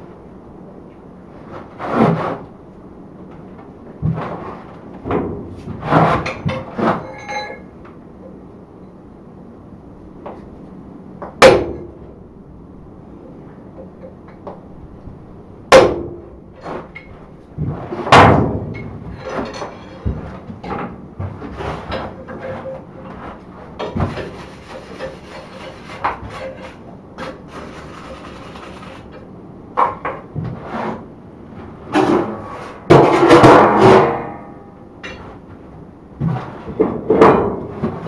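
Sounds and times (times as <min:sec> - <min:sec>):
metal scraping and clatter: 0:04.1 - 0:07.8, 0:16.5 - 0:29.3.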